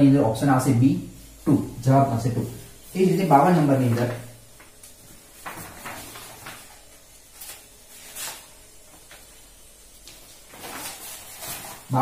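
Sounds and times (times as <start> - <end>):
paper rustling: 3.4 - 12.0.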